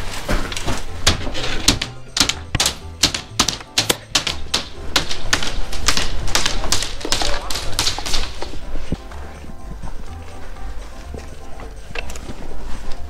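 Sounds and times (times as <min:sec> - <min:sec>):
footsteps crunching through snow: 0:00.0 - 0:01.6.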